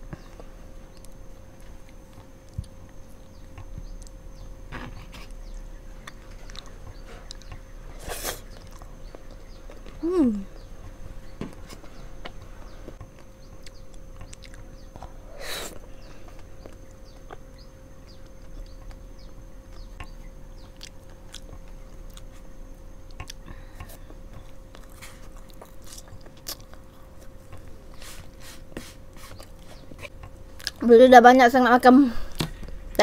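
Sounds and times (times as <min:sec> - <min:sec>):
faint steady hum: 0:00.0 - 0:33.0
person chewing marshmallow: 0:00.1 - 0:30.8.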